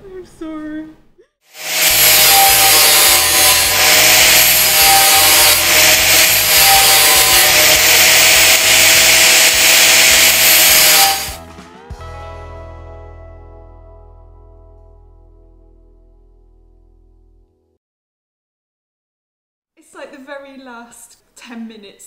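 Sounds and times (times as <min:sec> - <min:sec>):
angle grinder grinding metal: 0:01.5 - 0:11.4.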